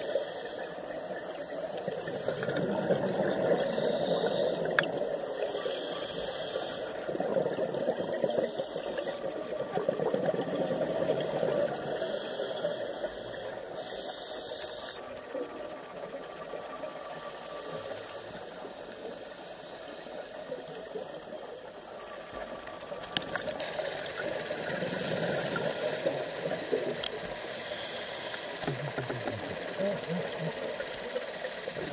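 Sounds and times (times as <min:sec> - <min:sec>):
regulator breathing underwater: 0:00.0 - 0:15.3, 0:23.7 - 0:26.4, 0:27.1 - 0:28.7
rushing bubbles: 0:02.2 - 0:04.0, 0:09.3 - 0:11.8.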